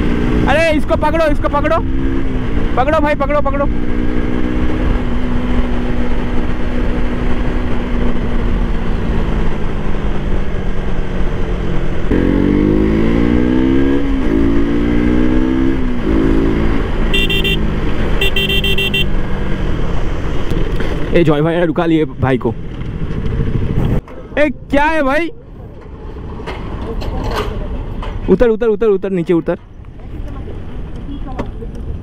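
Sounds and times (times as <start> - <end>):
motorcycle engine revving: 0.0 - 21.2
horn blasts: 17.1 - 19.1
wind rushing: 22.5 - 25.0.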